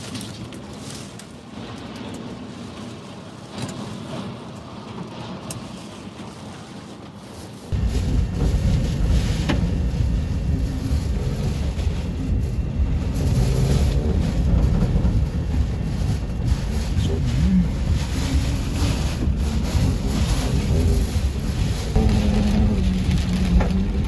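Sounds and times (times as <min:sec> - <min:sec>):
wind buffeting microphone: 0:07.7 - 0:24.0.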